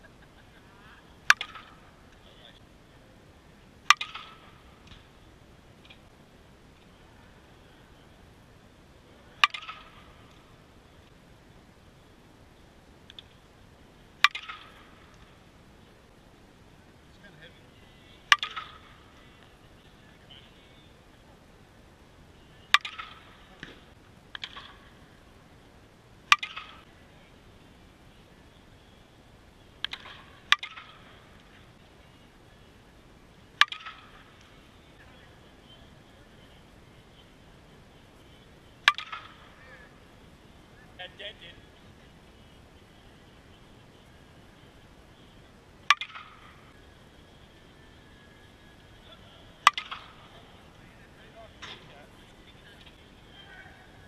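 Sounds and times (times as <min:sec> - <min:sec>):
bat cracking softball: 0:01.2 - 0:01.9, 0:03.8 - 0:05.1, 0:09.4 - 0:10.5, 0:14.2 - 0:15.4, 0:18.3 - 0:19.5, 0:22.6 - 0:25.0, 0:26.3 - 0:26.9, 0:29.8 - 0:31.6, 0:33.6 - 0:34.6, 0:38.2 - 0:39.6, 0:45.8 - 0:46.8, 0:49.6 - 0:50.4.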